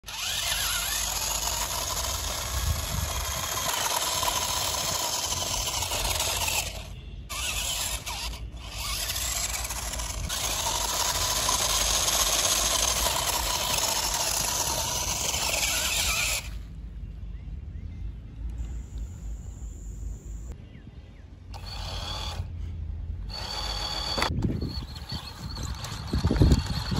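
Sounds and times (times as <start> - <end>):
toy car motor and gears whirring: 0.0 - 16.6, 21.5 - 22.5, 23.2 - 26.9.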